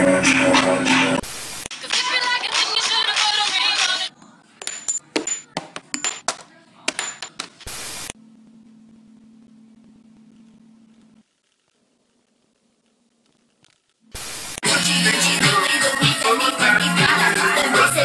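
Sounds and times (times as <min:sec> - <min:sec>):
music: 0:00.0 - 0:01.2, 0:01.8 - 0:04.1, 0:14.6 - 0:18.0
faint steady hum: 0:07.7 - 0:14.6.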